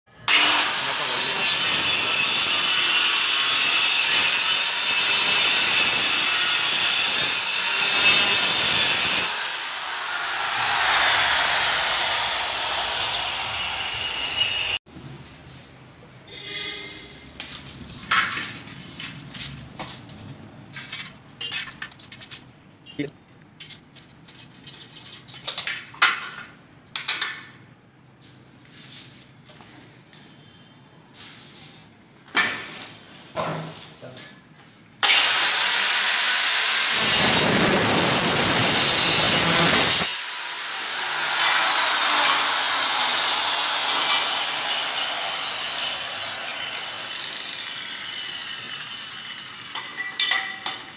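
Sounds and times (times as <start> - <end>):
circular saw cutting board: 0.2 - 14.8, 35.0 - 50.2
tools clattering on hard floor: 49.8 - 50.9.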